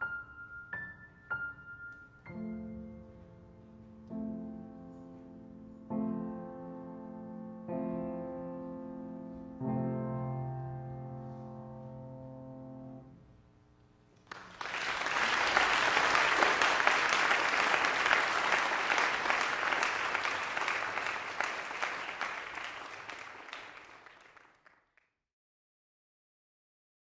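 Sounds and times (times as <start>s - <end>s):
grand piano chord ringing: 0.0s - 13.2s
audience applause: 14.2s - 24.8s.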